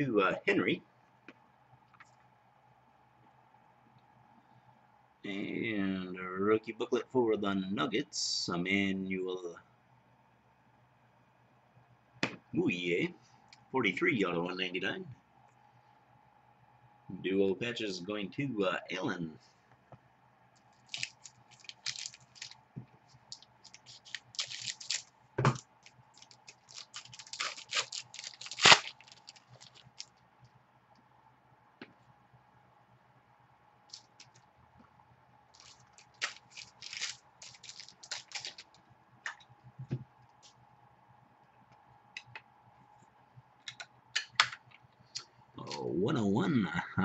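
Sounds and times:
card packaging crinkling: 20.7 - 30.2, 33.9 - 34.4, 35.5 - 38.8.

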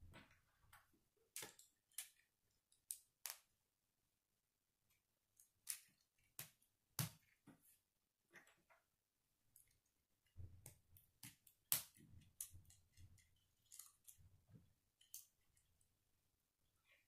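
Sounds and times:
plastic pieces clicking and rattling: 1.3 - 3.5, 10.6 - 14.3.

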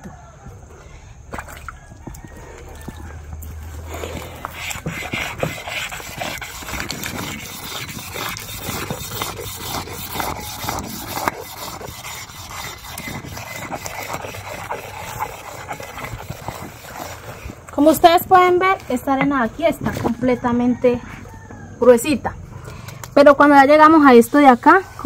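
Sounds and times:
stone grinding gritty sand: 3.9 - 17.8.

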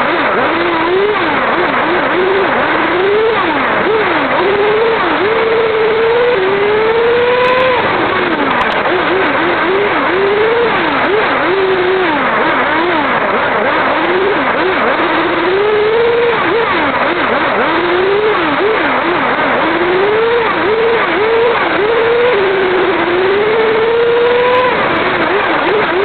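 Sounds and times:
rc car motor revving: 0.0 - 26.0
tyre and drivetrain rush: 0.0 - 26.0.

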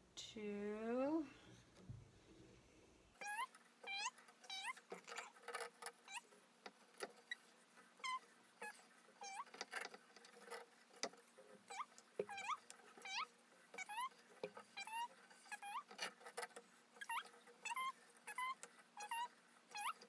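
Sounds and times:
small animal squeaky calls: 3.2 - 5.4, 6.0 - 6.4, 7.2 - 9.7, 11.6 - 16.4, 17.0 - 20.0.

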